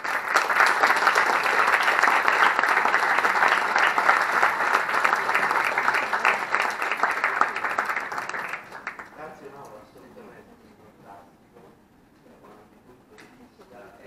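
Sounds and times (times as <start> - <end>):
small audience applauding: 0.0 - 9.4.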